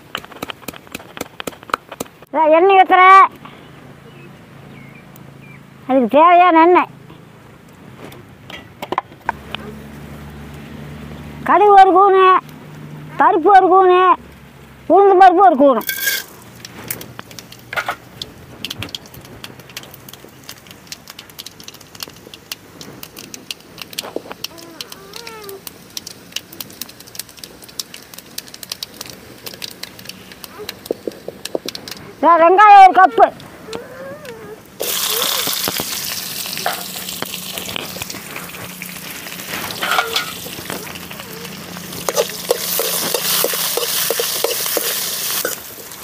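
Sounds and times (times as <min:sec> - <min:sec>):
seeds popping in hot oil: 0:00.0 - 0:02.3, 0:15.8 - 0:32.1, 0:34.8 - 0:46.0.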